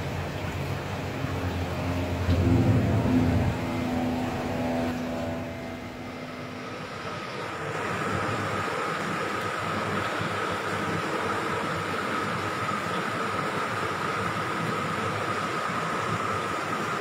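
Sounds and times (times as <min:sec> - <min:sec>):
higher steady hum: 0:00.0 - 0:12.4
low mechanical hum: 0:00.0 - 0:17.0.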